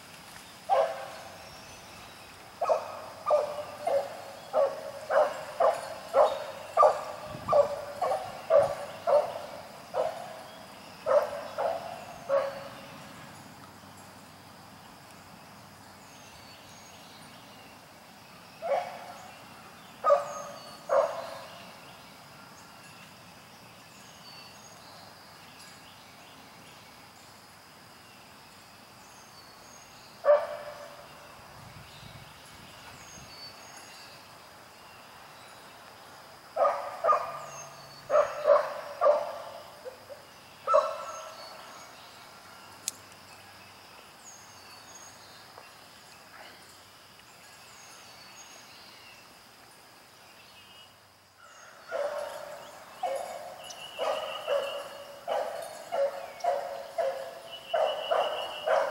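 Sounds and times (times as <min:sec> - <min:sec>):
dog barking: 0:00.7 - 0:01.1, 0:02.6 - 0:09.4, 0:11.1 - 0:12.7, 0:18.6 - 0:19.1, 0:20.0 - 0:21.3, 0:30.3 - 0:30.9, 0:36.6 - 0:37.5, 0:38.1 - 0:39.6, 0:40.7 - 0:41.3, 0:51.9 - 0:58.9.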